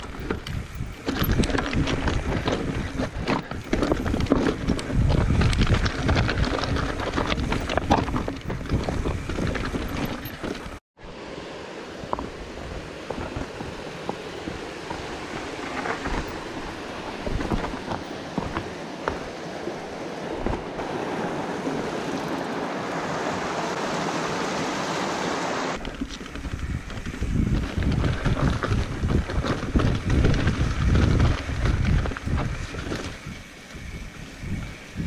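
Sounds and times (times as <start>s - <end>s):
bike rattling: 0.0s - 10.8s, 12.1s - 20.8s, 25.8s - 35.0s
tyres clattering over rocks: 0.0s - 10.8s, 12.1s - 20.7s, 25.8s - 33.2s
wind buffeting microphone: 0.0s - 10.8s, 11.9s - 24.7s, 25.7s - 35.0s.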